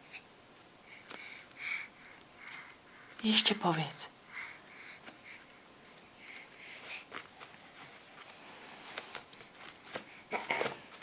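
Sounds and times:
rustling: 4.5 - 11.0.

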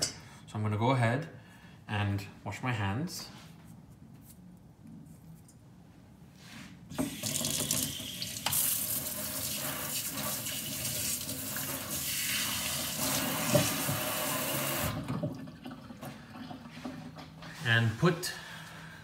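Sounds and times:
faucet running into sink: 6.9 - 16.7.

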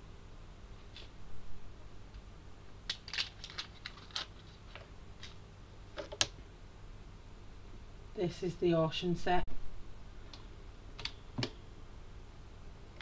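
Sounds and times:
paper wrapping crinkling: 2.9 - 5.4.

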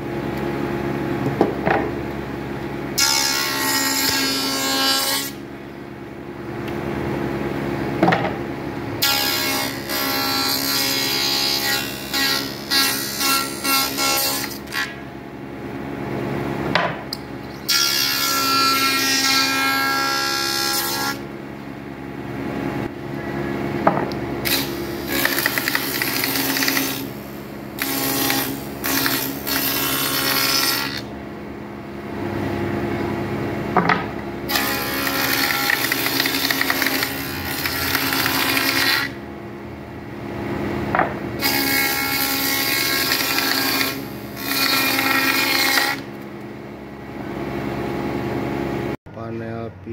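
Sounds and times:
spindle moulder motor hum: 0.0 - 49.9
cutter cutting wood panels: 2.9 - 5.4, 9.0 - 15.0, 16.8 - 21.2, 23.8 - 31.1, 33.7 - 39.2, 40.9 - 46.3.

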